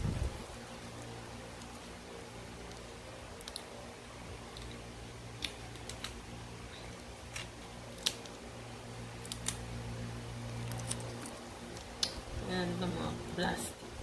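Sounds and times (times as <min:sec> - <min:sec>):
low steady hum: 0:00.0 - 0:14.0
scissors snipping: 0:07.3 - 0:08.4, 0:09.2 - 0:09.6.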